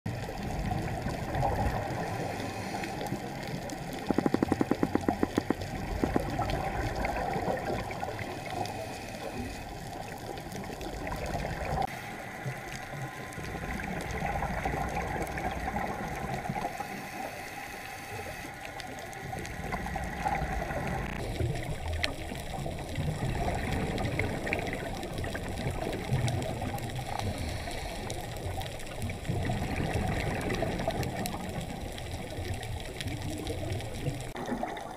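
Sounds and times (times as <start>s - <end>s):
scuba bubbles gurgling underwater: 0.1s - 34.9s
sharp clicks: 3.9s - 6.4s.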